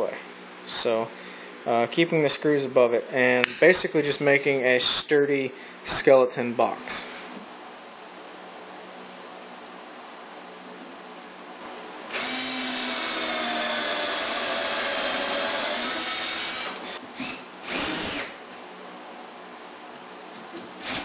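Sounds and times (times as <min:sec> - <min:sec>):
cordless drill boring wood: 0:12.1 - 0:18.4, 0:20.8 - 0:21.0.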